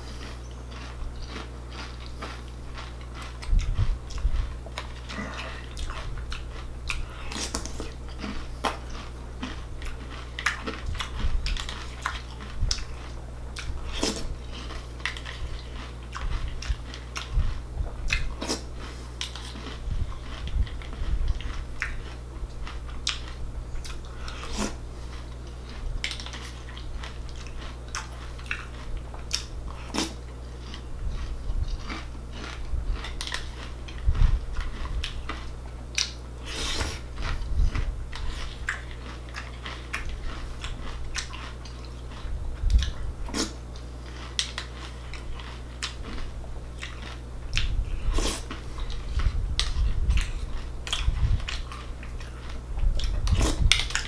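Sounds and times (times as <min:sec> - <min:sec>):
crunching and chewing cereal: 0:00.0 - 0:54.0
low hum: 0:00.0 - 0:54.0.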